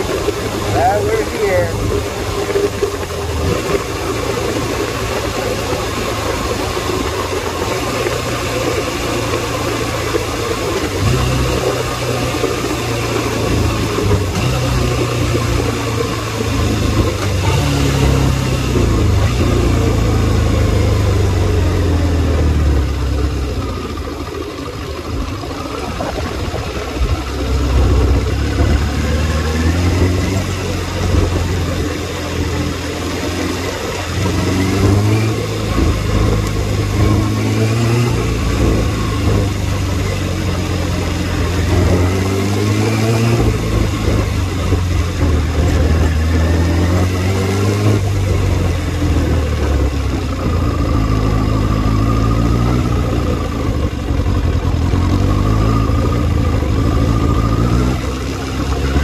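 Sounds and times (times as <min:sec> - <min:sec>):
motorcycle engine running: 0:00.0 - 0:59.0
wind noise: 0:25.1 - 0:29.0.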